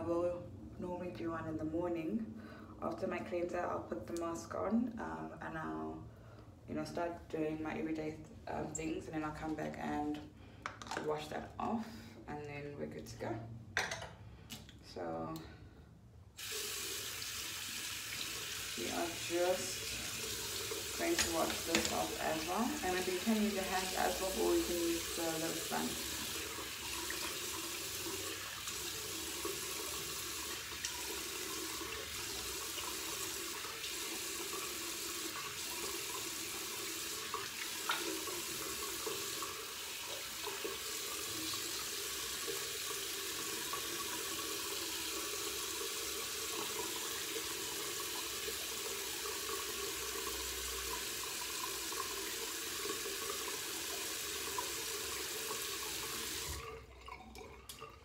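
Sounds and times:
tap running into sink: 20.1s - 22.5s, 37.3s - 39.2s.

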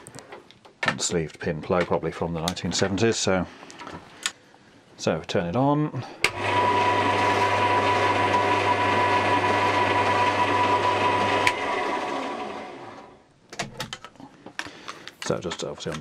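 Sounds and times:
bandsaw motor humming and whining: 6.3s - 13.1s.

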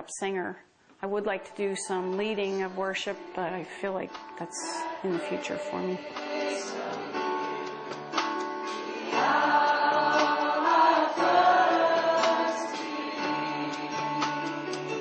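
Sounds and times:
instrumental backing with beat: 4.1s - 15.0s
voices singing together: 4.4s - 15.0s.

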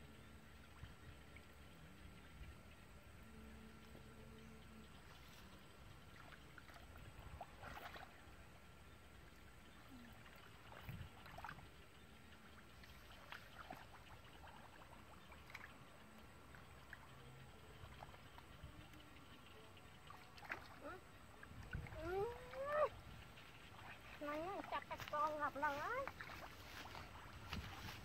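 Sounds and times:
splashing and squelching in muddy water: 5.0s - 8.4s, 9.7s - 19.0s, 20.0s - 28.0s.

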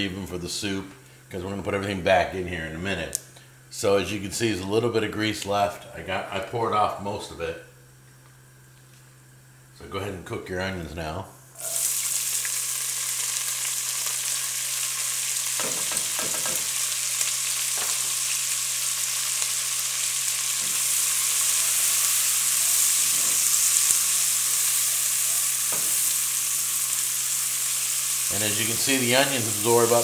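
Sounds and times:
onion sizzling in grease: 11.6s - 30.0s.

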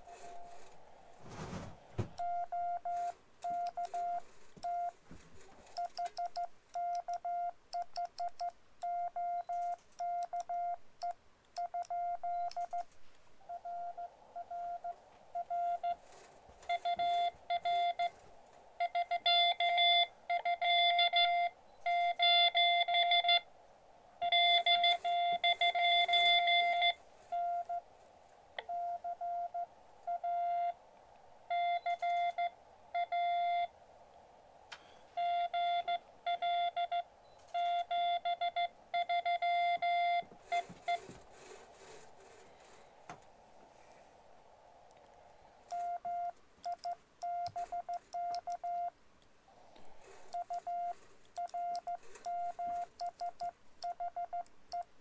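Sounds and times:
morse code beeps: 2.2s - 5.0s, 5.8s - 12.9s, 13.5s - 16.0s, 16.6s - 18.1s, 18.8s - 23.5s, 24.2s - 27.8s, 28.6s - 30.8s, 31.5s - 33.7s, 35.2s - 41.1s, 45.7s - 48.9s, 50.3s - 54.9s
receiver hiss: 10.7s - 48.6s.

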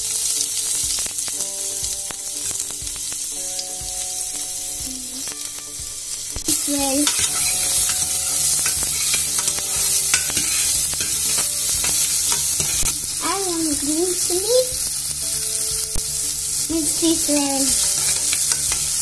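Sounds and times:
onion sizzling in hot fat: 0.0s - 19.0s
metal spoon scraping a pot: 6.6s - 12.9s, 17.8s - 19.0s.

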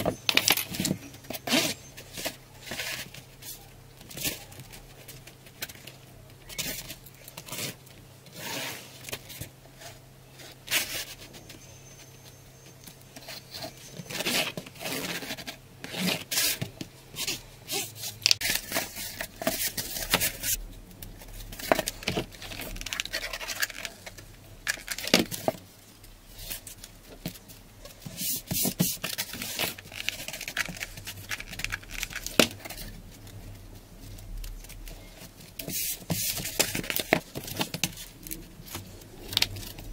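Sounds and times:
cardboard strips scraping: 6.5s - 11.3s, 13.2s - 20.6s.

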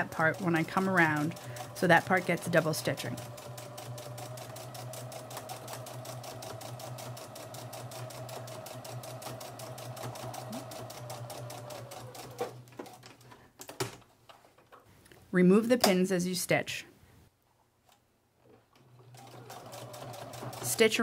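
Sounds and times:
sewing machine stitching: 0.0s - 13.2s, 18.7s - 21.0s.

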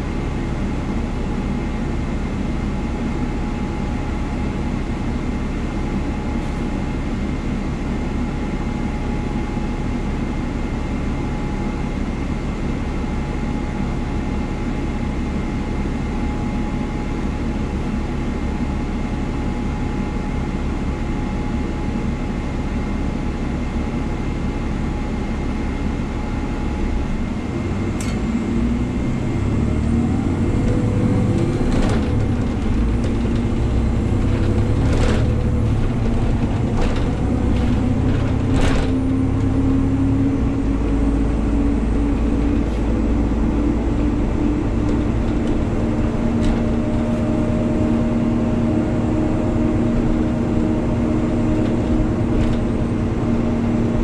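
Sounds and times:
bus drivetrain rumble: 0.0s - 54.0s
rising whine: 26.0s - 54.0s.

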